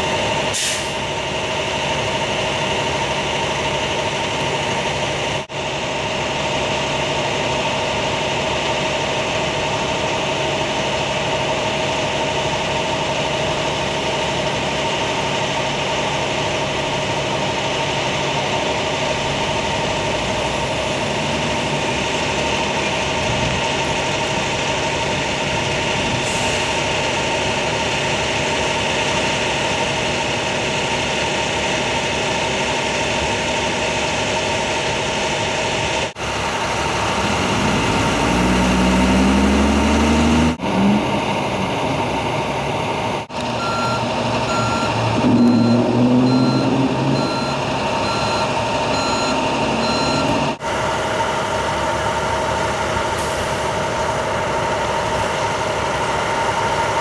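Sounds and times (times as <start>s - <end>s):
vehicle engines idling: 0.0s - 57.0s
engine revving: 36.2s - 42.5s, 43.3s - 50.7s
reversing alarm beeping: 43.6s - 50.6s.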